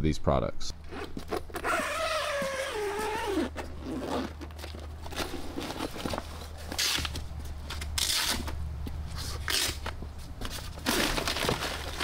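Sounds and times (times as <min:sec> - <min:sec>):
awning creaking open: 0:00.9 - 0:04.4.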